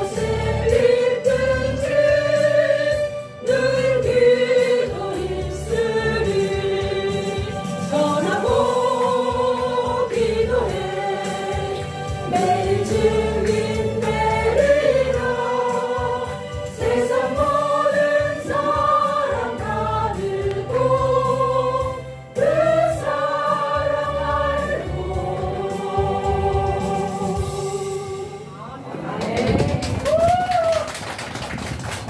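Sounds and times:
church choir singing: 0.0 - 28.6.

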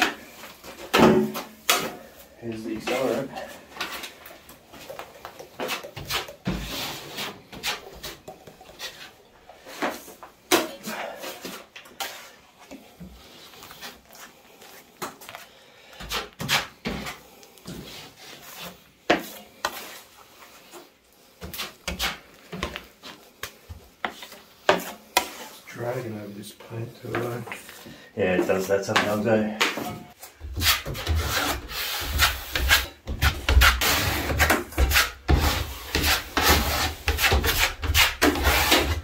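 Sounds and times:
blade scraping plaster on a hawk: 30.5 - 39.0.

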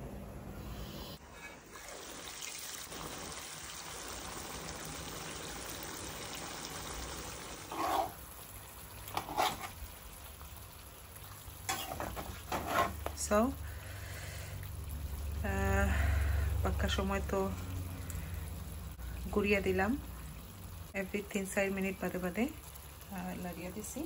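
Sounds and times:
meat sizzling in sauce: 1.6 - 24.0
spatula turning food in pan: 7.6 - 10.5, 11.2 - 13.5.

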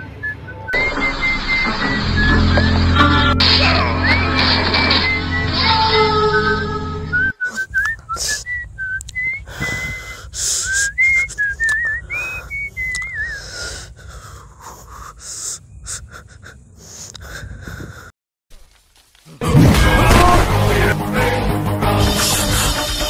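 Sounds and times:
person whistling a slow tune: 0.0 - 3.4, 4.0 - 5.6, 6.5 - 13.4
low steady drone: 0.8 - 7.3
breathy noises: 7.1 - 18.1.

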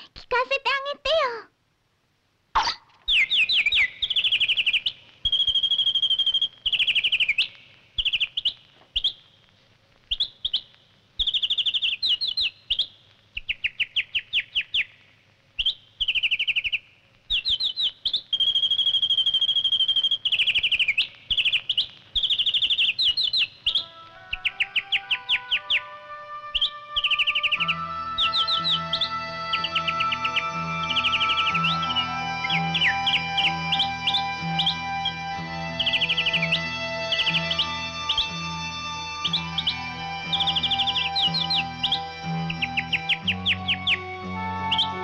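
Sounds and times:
nightingale singing: 2.6 - 45.0
soft orchestral music: 23.7 - 45.0.

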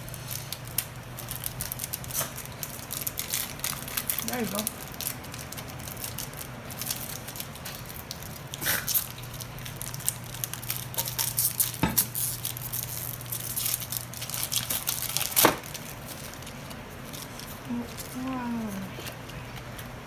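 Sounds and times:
foil wrapper crinkling: 0.0 - 20.0.

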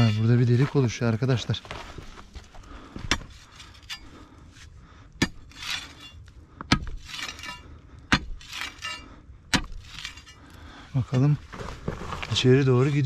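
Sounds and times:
metal tool striking stony soil: 0.0 - 0.9, 5.2 - 10.4
loose earth and stones rustling: 0.0 - 13.0.

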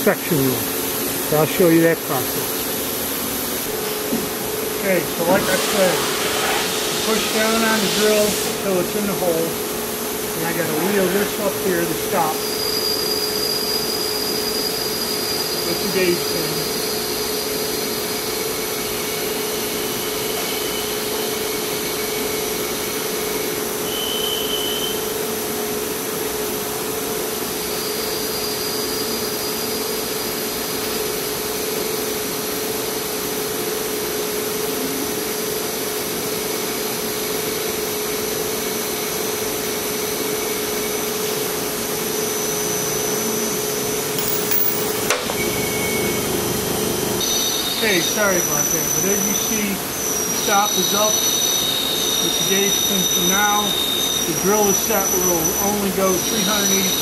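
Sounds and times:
shop machinery humming: 0.0 - 24.6, 38.2 - 57.0.

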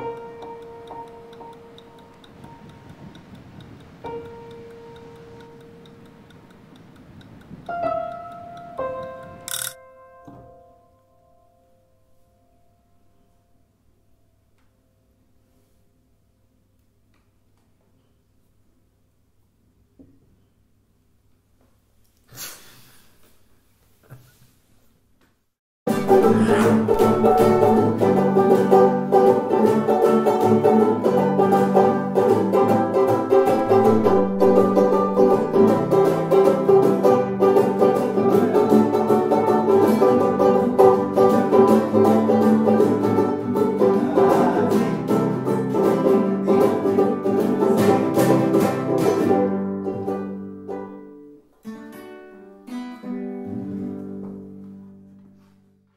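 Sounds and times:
plucked strings music: 0.0 - 6.4, 25.9 - 55.1.

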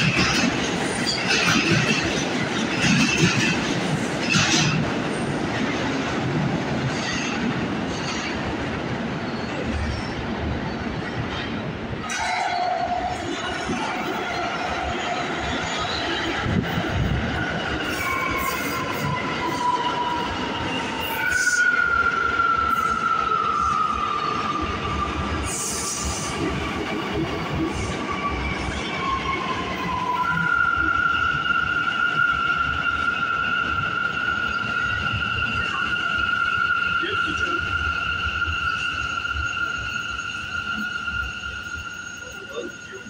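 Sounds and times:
subway train rumble: 0.0 - 43.0
train wheels squealing: 9.2 - 43.0.

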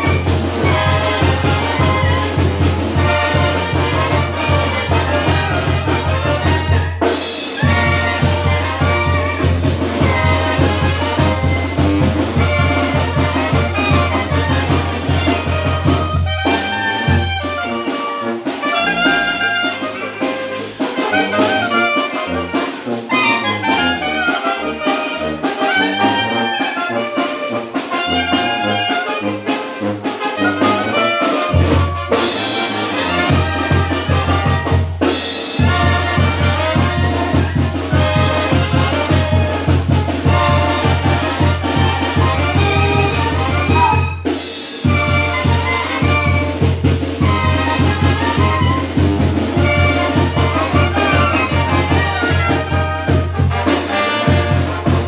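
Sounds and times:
drum kit steady beat: 0.0 - 18.8, 31.5 - 55.0
brass melody: 0.0 - 55.0.

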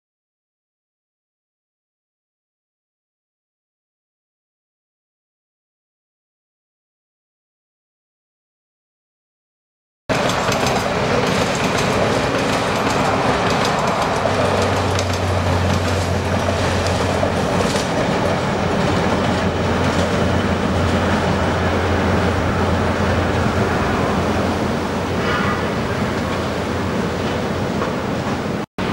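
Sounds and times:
low drone: 10.1 - 27.3
train wheels clacking on rails: 10.1 - 28.9.

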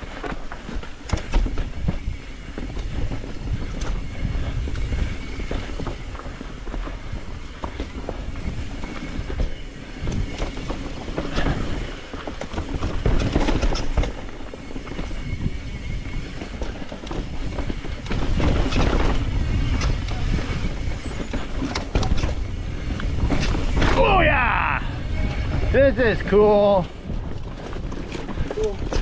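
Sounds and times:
bike chain and frame rattling: 0.0 - 29.0
bike tyres rolling over dirt: 0.0 - 29.0
wind rumble on microphone: 0.0 - 29.0.

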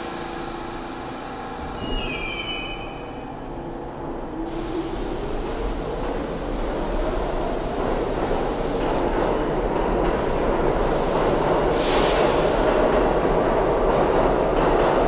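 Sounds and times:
subway train rumbling past: 0.0 - 15.0
burst of hiss: 4.5 - 9.0, 10.8 - 12.8.

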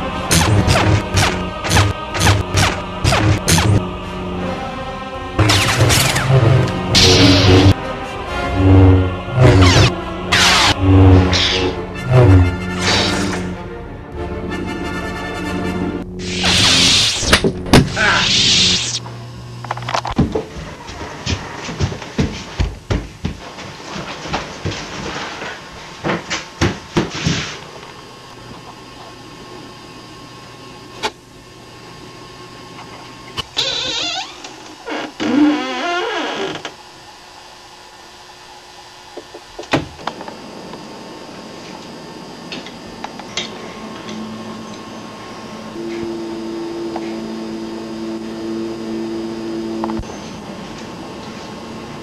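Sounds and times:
low electronic drone: 0.0 - 20.0, 40.3 - 52.0
steady low hum: 0.0 - 52.0.

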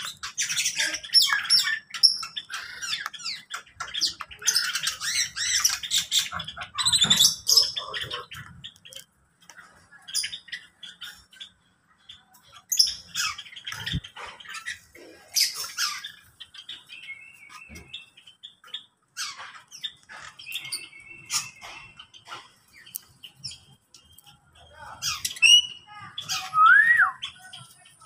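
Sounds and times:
caged birds squawking and chirping: 0.0 - 28.0
whistled bird notes: 25.1 - 27.6.

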